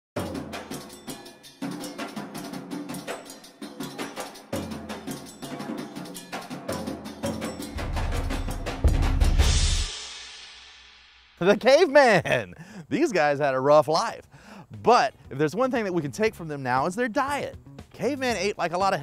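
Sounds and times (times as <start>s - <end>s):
background music with percussion: 0.2s - 11.6s, 14.7s - 19.0s
low bass: 7.7s - 9.9s.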